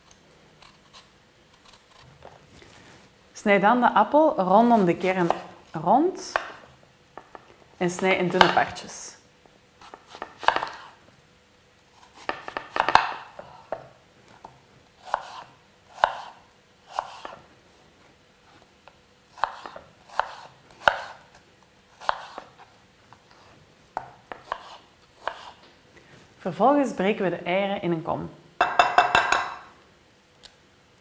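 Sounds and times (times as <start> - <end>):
knife slicing apple: 4.6 - 5.6, 9.8 - 11.0, 11.9 - 13.9, 15.0 - 17.4, 19.3 - 23.3, 23.9 - 25.6
knife knocking on wooden board: 28.6 - 29.6.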